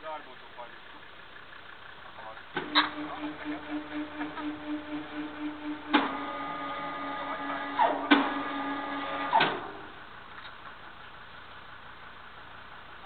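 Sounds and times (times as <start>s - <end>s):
engine idling hum: 0.0s - 13.0s
hoist clunks: 2.6s - 9.9s
crane hoist whine: 2.6s - 10.2s
short falling squeals: 4.8s - 9.8s.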